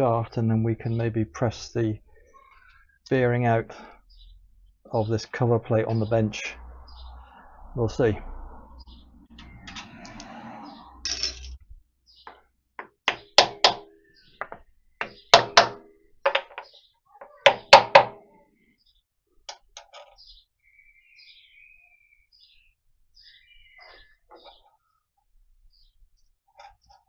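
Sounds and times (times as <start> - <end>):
knocks on metal plate: 12.8 - 16.7, 17.4 - 18.2.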